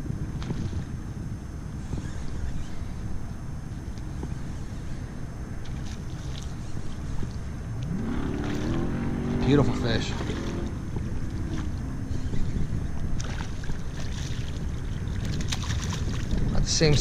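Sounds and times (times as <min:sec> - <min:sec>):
droning hum rising in pitch: 0:00.0 - 0:15.2
wind buffeting microphone: 0:00.0 - 0:17.0
faint clicks of fishing reel: 0:01.7 - 0:07.9.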